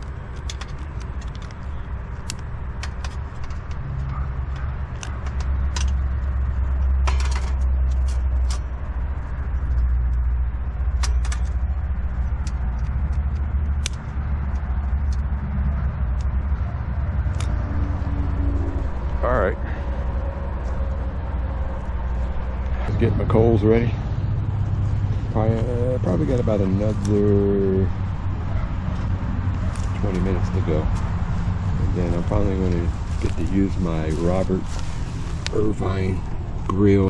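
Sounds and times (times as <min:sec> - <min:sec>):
charcoal crackling and popping: 0:00.0 - 0:16.6
charcoal fire rumbling: 0:00.0 - 0:37.0.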